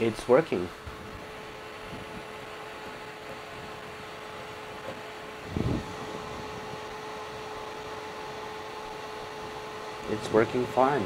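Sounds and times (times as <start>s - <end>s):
cooling fan whooshing: 0.0s - 11.0s.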